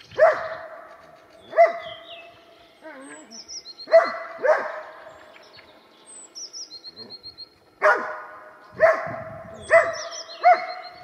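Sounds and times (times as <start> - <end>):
small bird chirping: 0.0 - 7.8, 8.7 - 11.0
dog barking: 0.2 - 0.9, 1.5 - 2.0, 3.9 - 5.1, 7.8 - 11.0.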